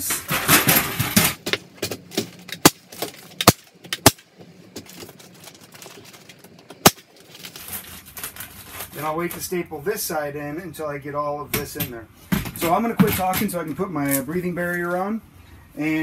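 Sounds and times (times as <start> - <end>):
paper rustling: 4.7 - 9.4.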